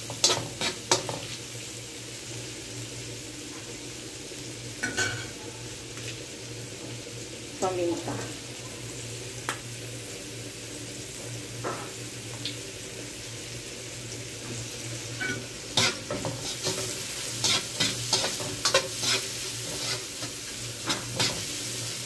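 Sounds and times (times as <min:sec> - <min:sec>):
spatula scraping a wok: 0:00.0 - 0:01.4, 0:15.2 - 0:22.0
food sizzling in a wok: 0:00.0 - 0:22.0.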